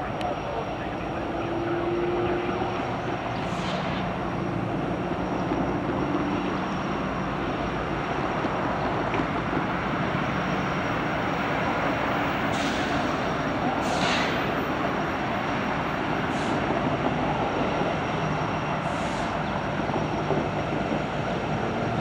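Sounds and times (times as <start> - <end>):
faint whine: 0.0 - 8.3
locomotive engine rumble: 0.0 - 22.0.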